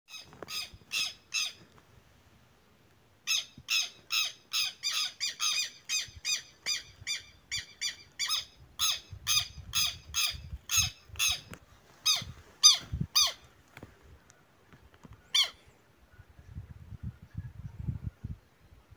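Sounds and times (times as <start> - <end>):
lapwings squawking alarm calls: 0.1 - 1.6, 3.3 - 13.5, 15.3 - 15.6.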